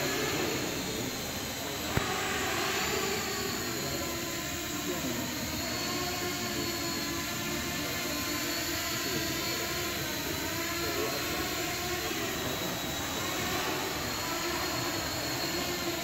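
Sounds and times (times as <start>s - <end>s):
drone propellers buzzing: 0.0s - 16.0s.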